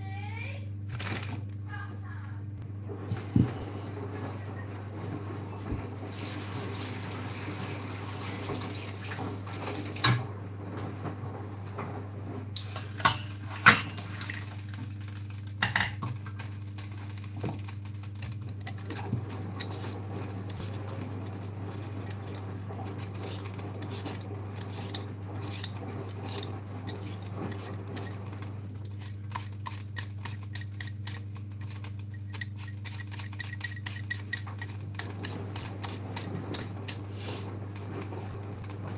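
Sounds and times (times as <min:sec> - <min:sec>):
steady low hum: 0:00.0 - 0:06.2, 0:11.3 - 0:38.9
utensils and dishes clattering: 0:12.6 - 0:14.8, 0:15.5 - 0:37.5
peeler scraping a potato: 0:18.3 - 0:37.5.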